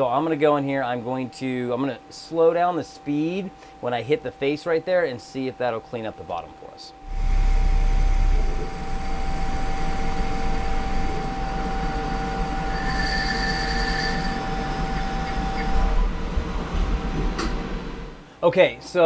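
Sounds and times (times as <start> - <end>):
high even machine whine: 0.0 - 19.0
lathe whirring and cutting: 7.1 - 16.7.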